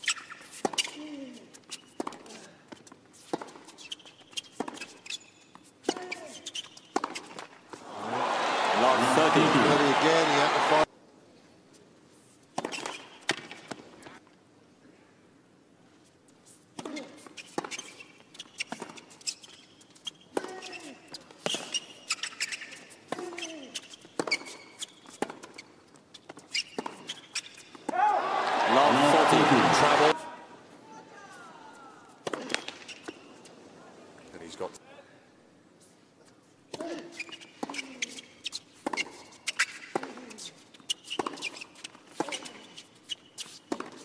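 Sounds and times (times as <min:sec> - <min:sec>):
tennis shoes squeaking on court: 0:00.0 - 0:07.9, 0:08.6 - 0:10.9, 0:12.2 - 0:14.1, 0:16.4 - 0:30.2, 0:32.0 - 0:33.6, 0:35.8 - 0:44.0
rackets hitting tennis ball: 0:43.6 - 0:44.0.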